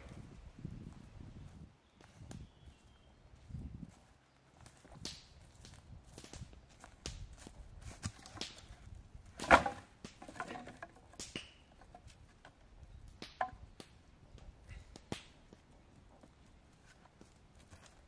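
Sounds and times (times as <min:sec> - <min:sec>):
wooden sticks clattering onto pile: 0:07.9 - 0:08.8, 0:09.4 - 0:12.6, 0:13.2 - 0:13.6
knocks of sticks placed: 0:07.9 - 0:13.9.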